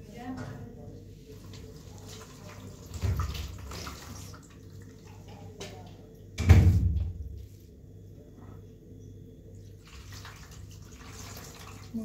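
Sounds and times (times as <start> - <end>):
water splashing and running: 1.5 - 5.4, 9.8 - 12.0.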